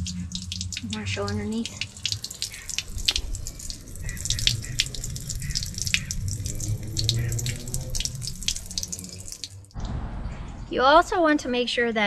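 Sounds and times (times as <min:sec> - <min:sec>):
water splattering on concrete: 0:00.0 - 0:09.8.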